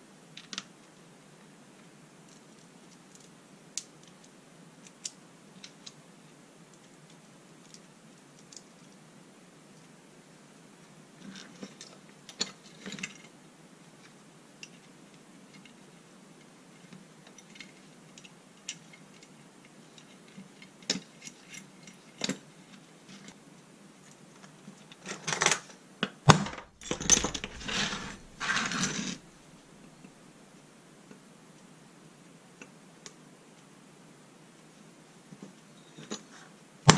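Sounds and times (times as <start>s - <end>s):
metal knocks and clatter: 26.3s - 29.2s
small metal parts clinking: 26.3s - 29.3s.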